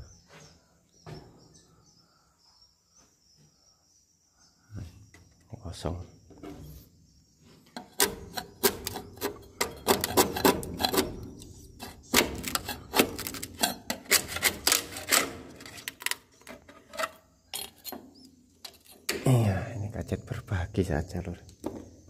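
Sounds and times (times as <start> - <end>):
taps and scrapes on wood: 7.4 - 19.2.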